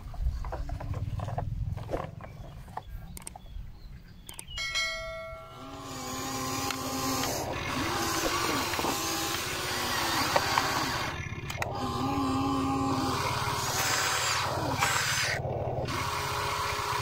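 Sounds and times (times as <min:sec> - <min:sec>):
steady low hum: 0:00.0 - 0:17.0
small electric motors whirring: 0:05.4 - 0:17.0.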